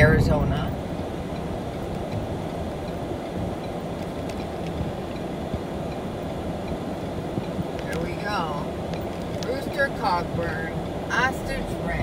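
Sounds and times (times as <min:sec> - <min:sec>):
car road and engine rumble: 0:00.0 - 0:12.0
faint ticks: 0:01.3 - 0:06.8.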